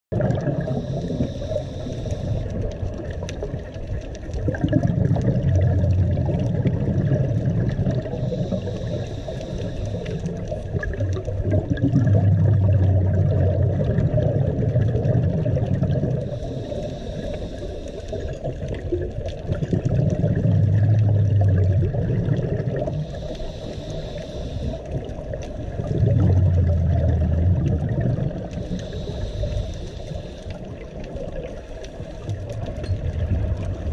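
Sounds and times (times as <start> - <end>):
bubbling exhale underwater: 0.1 - 33.9
hissing regulator inhale: 0.5 - 2.7, 7.9 - 10.8, 16.1 - 18.6, 22.8 - 25.8, 28.4 - 31.0, 31.6 - 32.6.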